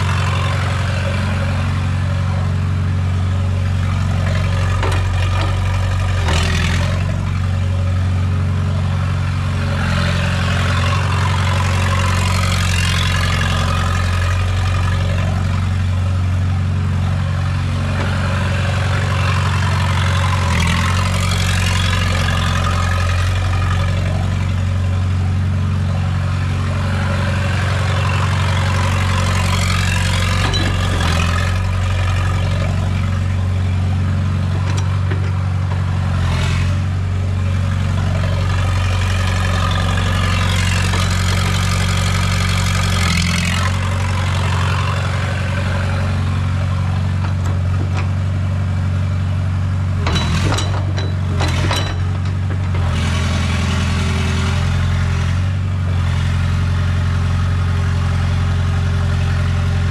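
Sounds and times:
diesel engine idling: 0.0s - 59.9s
sharp knocks: 50.1s - 52.9s.

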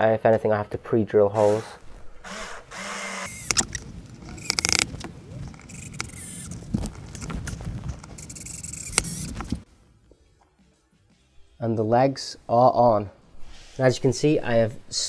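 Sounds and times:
rapid clicking: 5.6s - 9.6s.

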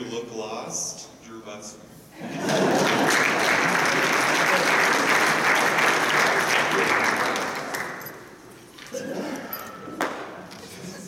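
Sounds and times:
audience applauding: 2.4s - 8.3s.

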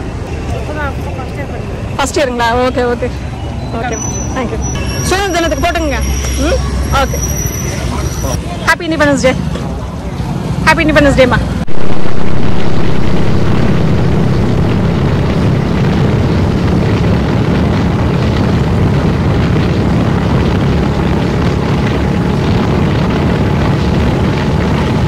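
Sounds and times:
wind rushing over microphone: 11.5s - 25.0s
motorcycle engine: 11.7s - 25.0s.

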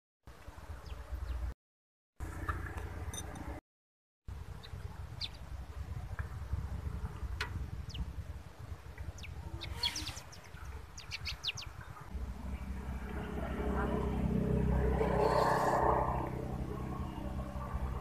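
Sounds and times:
low steady background rumble: 4.3s - 18.0s
small birds chirping: 4.4s - 6.4s, 7.8s - 12.7s.

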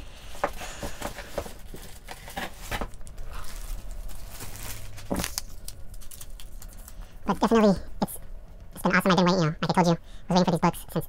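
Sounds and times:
low steady hum: 0.0s - 11.0s
rustling and clicks of handling: 0.3s - 7.1s.

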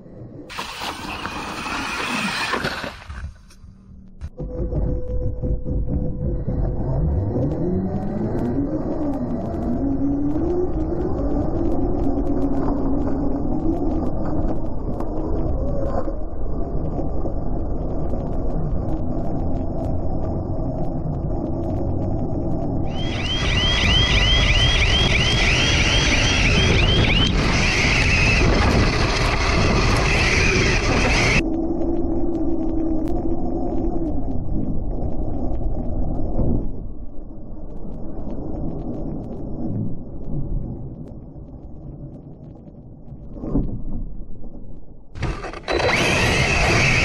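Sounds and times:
rumble of rc truck: 0.0s - 36.8s, 45.0s - 47.0s
high whine: 0.0s - 43.4s, 44.9s - 47.0s
wind rushing on microphone: 18.0s - 37.0s.

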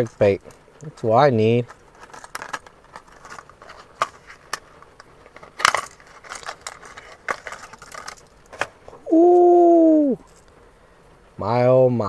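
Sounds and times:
plastic packaging crinkling: 0.0s - 8.9s
plastic snapping: 2.0s - 8.8s.

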